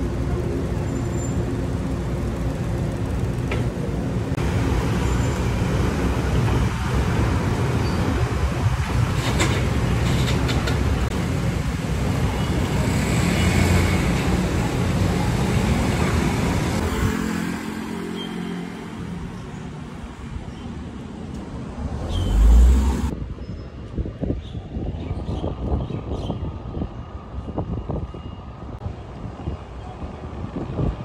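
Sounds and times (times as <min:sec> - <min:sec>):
harbour noise: 0:00.0 - 0:23.1
ferry engine rumble: 0:00.0 - 0:23.2
road traffic: 0:00.0 - 0:31.0
vehicle passing close: 0:21.5 - 0:23.1.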